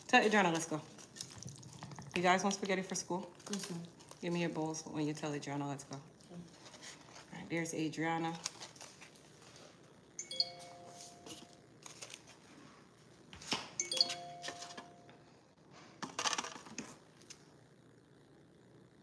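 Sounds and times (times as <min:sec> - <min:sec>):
electronic two-tone chime: 0:10.2 - 0:11.6, 0:13.8 - 0:15.2.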